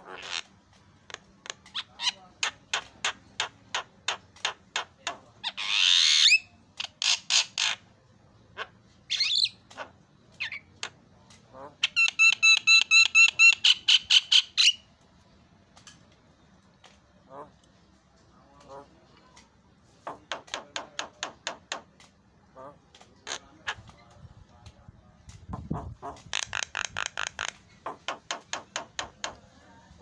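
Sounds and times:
bird rasping squawk: 0:00.0 - 0:00.5
bird chattering trill: 0:11.7 - 0:14.9.

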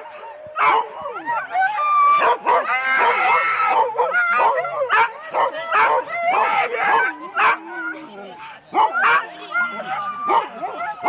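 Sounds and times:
dogs yipping and howling: 0:00.0 - 0:11.0
dogs barking sharply: 0:08.7 - 0:11.0.

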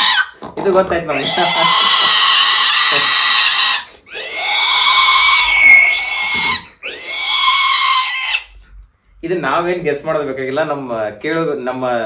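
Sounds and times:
person imitating an animal call: 0:01.1 - 0:03.2, 0:04.1 - 0:07.0.

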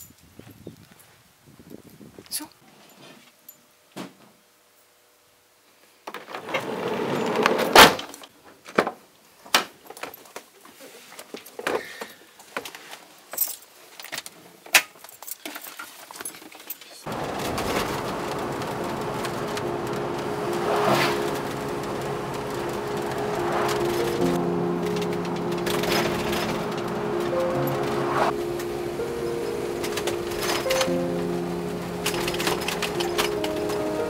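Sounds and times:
sharp crack: 0:17.1 - 0:34.0
van driving noise: 0:17.1 - 0:34.0
background music: 0:17.2 - 0:34.0.

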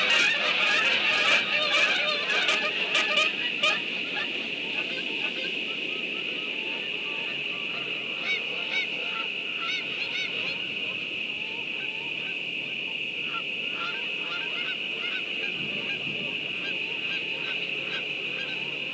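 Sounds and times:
geese honking: 0:00.0 - 0:18.9.

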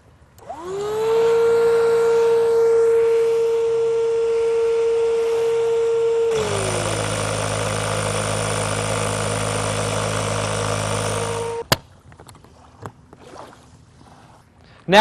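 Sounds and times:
electric inflation pump running: 0:00.4 - 0:11.8.

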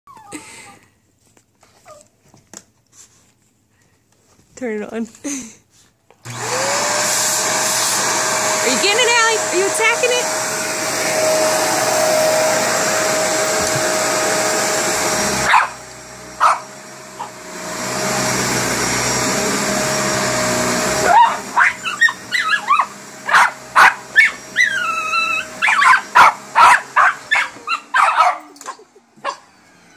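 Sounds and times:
vacuum cleaner humming: 0:06.2 - 0:29.9
dog barking: 0:15.5 - 0:15.8, 0:16.4 - 0:16.6, 0:21.1 - 0:24.7, 0:25.6 - 0:28.6, 0:29.2 - 0:29.5.

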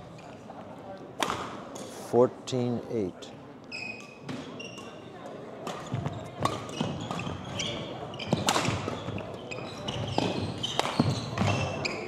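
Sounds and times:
shoes squeaking: 0:05.8 - 0:12.0.

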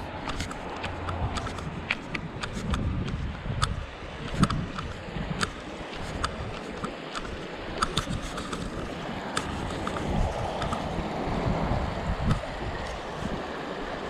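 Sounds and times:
bicycle clicks and rattles: 0:00.0 - 0:11.0, 0:12.1 - 0:13.3
wind on microphone: 0:00.0 - 0:14.0
creek hissing: 0:05.0 - 0:14.0.

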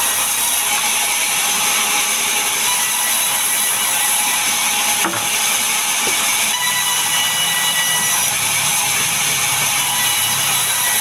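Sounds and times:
band saw ripping wood: 0:03.3 - 0:06.8
knock: 0:05.0 - 0:05.4.

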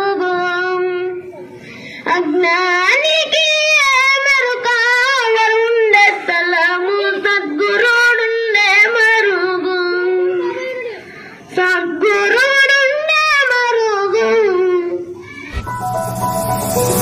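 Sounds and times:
singer breathing: 0:01.6 - 0:02.1.

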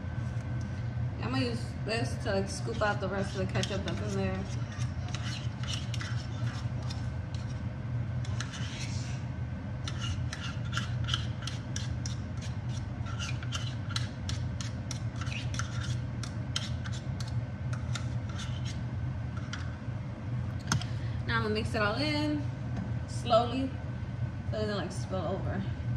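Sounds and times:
utensil scraping inside a bottle: 0:02.5 - 0:07.6, 0:08.2 - 0:09.2, 0:09.8 - 0:18.8.

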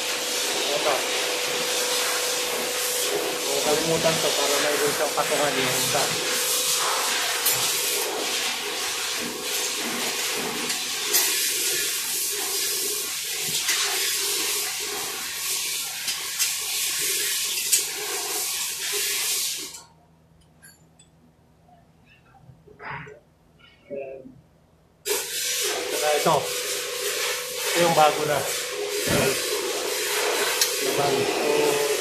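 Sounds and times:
rushing air hiss: 0:00.0 - 0:12.8, 0:25.1 - 0:32.0.

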